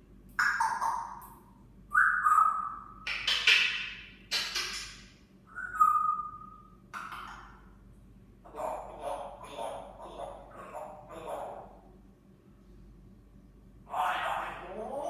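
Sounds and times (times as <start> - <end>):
parrot whistles: 1.9 - 3.1, 5.5 - 6.6
harsh parrot calls: 13.8 - 15.0.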